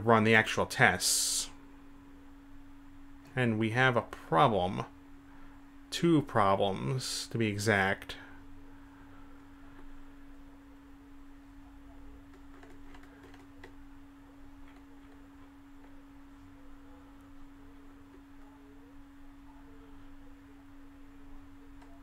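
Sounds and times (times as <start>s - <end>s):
faint steady hum: 0.0s - 22.0s
computer mouse clicks: 12.3s - 13.8s.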